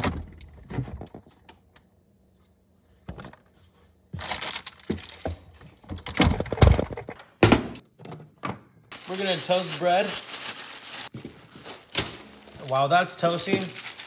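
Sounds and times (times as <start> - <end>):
rustling: 8.9 - 14.0.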